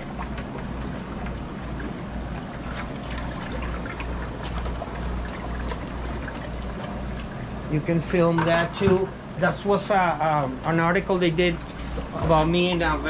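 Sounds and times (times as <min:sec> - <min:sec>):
water splashes and drips: 0:00.0 - 0:07.6
low steady hum: 0:00.0 - 0:13.0
water tank bubbling: 0:00.0 - 0:13.0.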